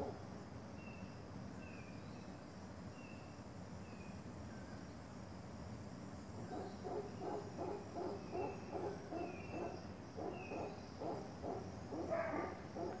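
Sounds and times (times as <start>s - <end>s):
howler monkeys hooting: 6.4s - 13.0s.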